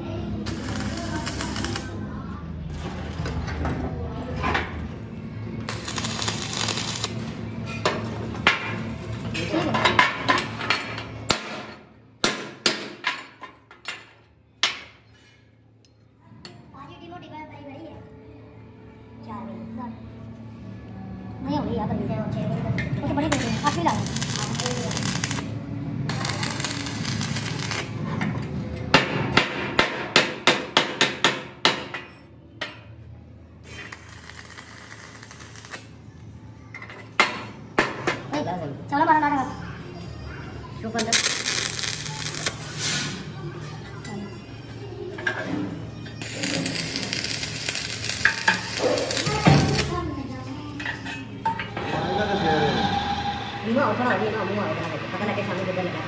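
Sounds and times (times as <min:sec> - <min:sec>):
workshop noise: 0:00.0 - 0:16.6, 0:22.7 - 0:38.6, 0:40.6 - 0:44.3, 0:45.0 - 0:56.0
hammer striking metal: 0:11.3 - 0:13.3, 0:28.9 - 0:32.8
hammer striking steel: 0:11.3 - 0:13.3.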